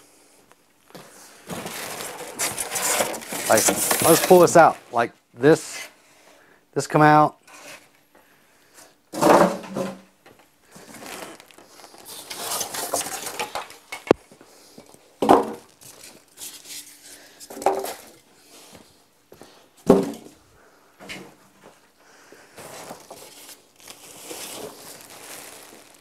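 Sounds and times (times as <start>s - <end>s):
styrofoam scraping and rustling: 1.4s - 5.0s, 10.7s - 14.1s, 14.8s - 18.2s, 22.6s - 26.0s.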